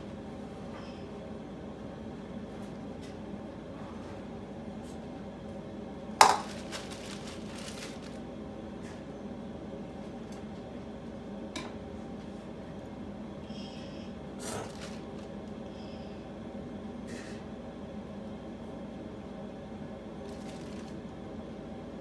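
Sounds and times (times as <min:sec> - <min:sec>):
steady low hum: 0:00.0 - 0:22.0
hard item knocked on countertop: 0:06.2 - 0:06.5.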